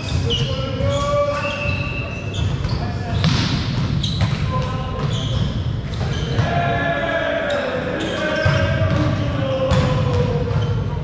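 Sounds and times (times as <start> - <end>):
basketball bouncing: 3.2 - 4.4, 8.4 - 11.0
voices: 6.1 - 10.7.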